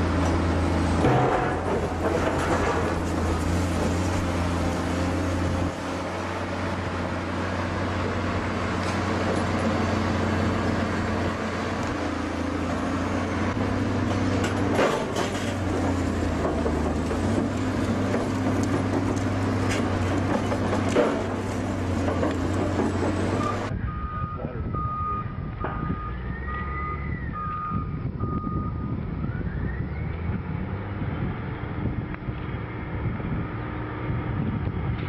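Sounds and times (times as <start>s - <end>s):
heavy vehicle engine droning: 0.0s - 35.0s
sharp clanks: 1.0s - 4.0s.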